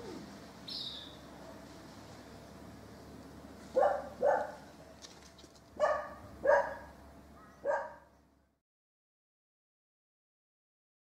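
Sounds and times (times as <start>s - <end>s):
dog barking: 3.7s - 5.0s, 5.8s - 8.1s.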